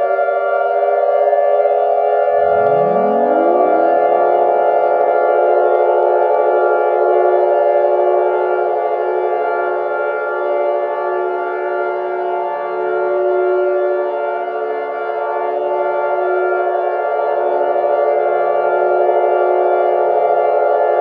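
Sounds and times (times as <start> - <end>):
sirens sounding: 0.6 - 12.0.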